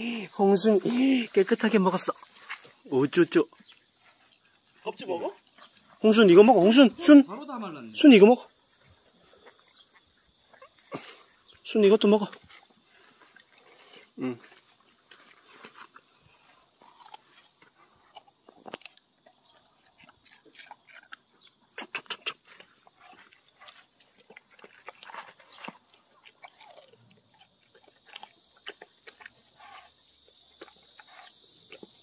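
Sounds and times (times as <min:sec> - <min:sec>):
dog chewing watermelon: 0:08.2 - 0:11.4, 0:12.0 - 0:32.0.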